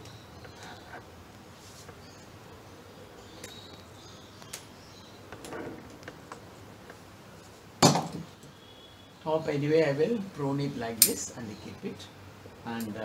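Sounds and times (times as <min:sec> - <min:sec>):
loud knock: 0:07.8 - 0:08.3.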